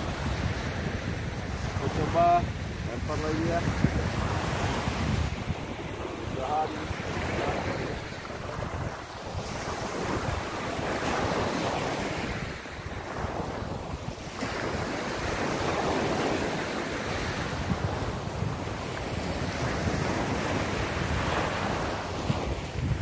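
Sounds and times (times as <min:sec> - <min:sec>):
small waves breaking on beach: 0:00.0 - 0:23.0
wind buffeting microphone: 0:00.0 - 0:23.0.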